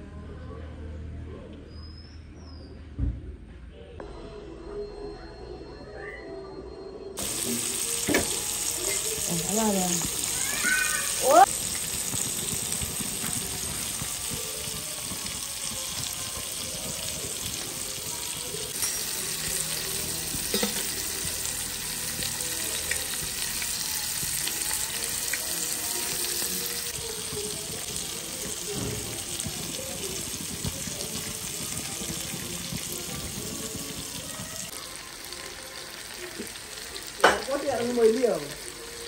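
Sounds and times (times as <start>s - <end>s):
fish sizzling in oil: 7.2s - 39.0s.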